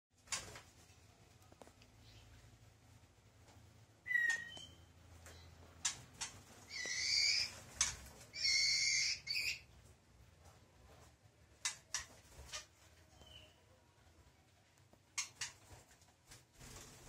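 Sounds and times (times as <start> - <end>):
harsh bird calls: 4.0 - 5.6, 6.6 - 9.7
bird sharp chips: 5.8 - 9.7.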